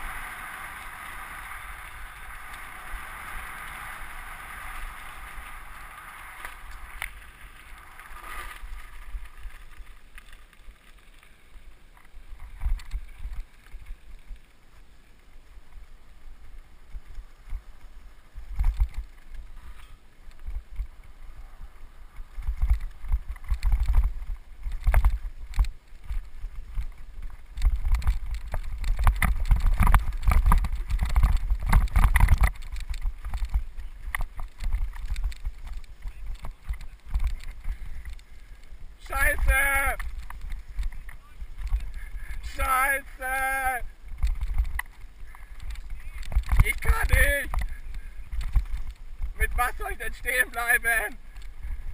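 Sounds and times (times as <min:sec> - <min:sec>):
tyres rumbling over gravel: 0:00.0 - 0:14.1
bike rattling and knocking: 0:22.1 - 0:38.4, 0:44.1 - 0:49.4.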